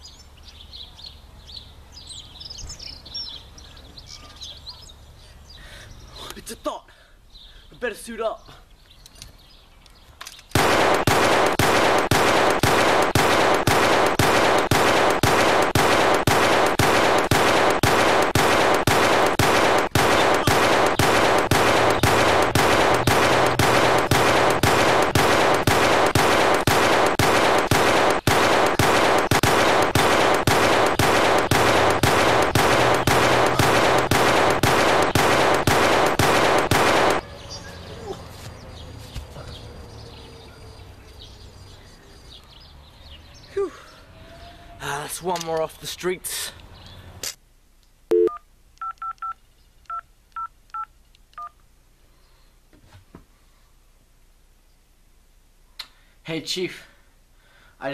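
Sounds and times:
automatic machine-gun fire: 0:10.6 - 0:37.2.

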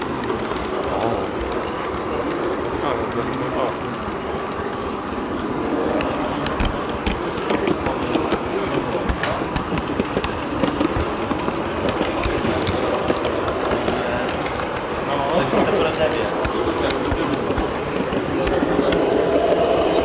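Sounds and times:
model train wheels clicking: 0:00.0 - 0:20.0
murmur of busy hall: 0:00.0 - 0:20.0.

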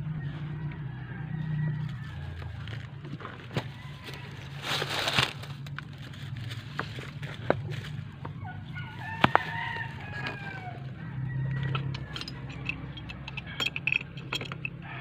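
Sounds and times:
rooster crowing: 0:00.0 - 0:02.7, 0:03.6 - 0:04.8, 0:08.4 - 0:13.8, 0:14.8 - 0:15.0
plastic pipe fittings clicking: 0:11.6 - 0:14.8.

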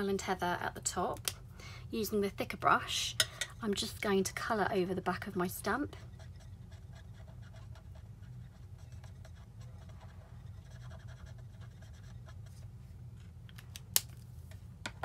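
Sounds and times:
steady low hum: 0:00.0 - 0:15.0
marker tip scratching on stamp: 0:06.2 - 0:12.6.

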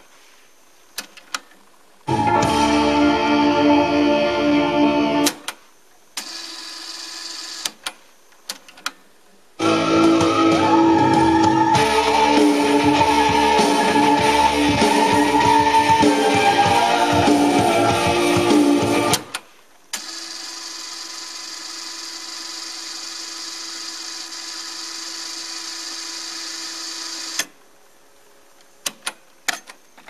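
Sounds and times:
guitar music from cassette: 0:02.1 - 0:05.4, 0:09.6 - 0:19.3.

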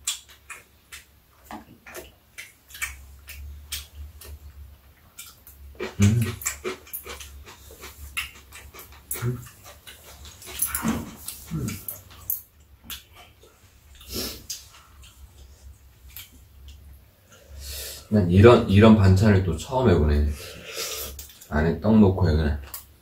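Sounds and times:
chewing and slurping: 0:05.1 - 0:16.4
chopsticks clicking against bowls: 0:05.2 - 0:13.1.

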